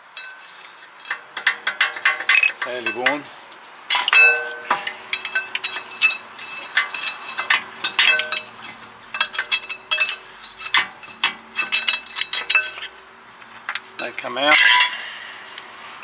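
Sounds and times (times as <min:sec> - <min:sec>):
screwdriver clinking and scraping metal: 0:03.9 - 0:15.1.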